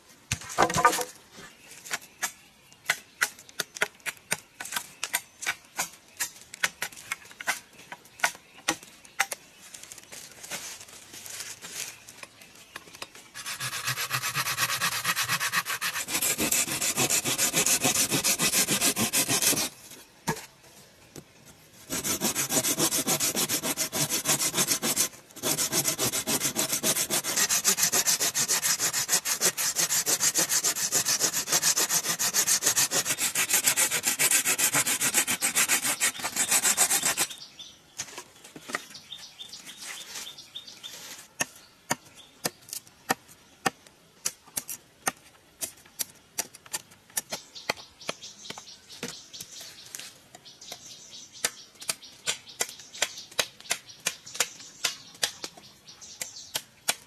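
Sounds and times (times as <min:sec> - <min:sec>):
hand tool rasping bamboo: 0:13.4 - 0:19.8, 0:21.9 - 0:37.4.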